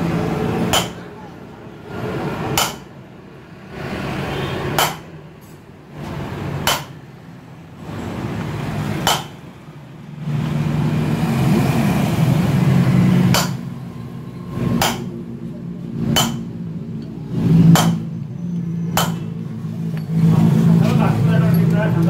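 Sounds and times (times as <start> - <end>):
hammer striking metal: 0.6 - 1.2, 2.5 - 3.0, 4.7 - 5.2, 6.6 - 7.0, 9.0 - 9.4, 13.3 - 13.7, 14.7 - 15.2, 16.0 - 16.6, 17.7 - 18.1, 18.9 - 19.3.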